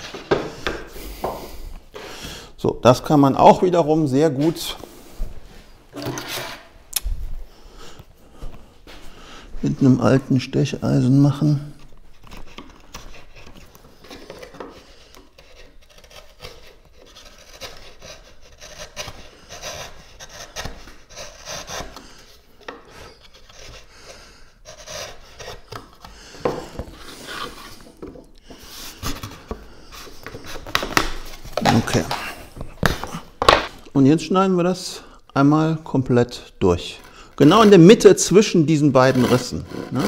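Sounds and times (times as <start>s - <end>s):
chisel scraping wood panel: 6.0s - 6.7s, 12.3s - 22.1s, 22.7s - 32.2s, 39.0s - 40.0s.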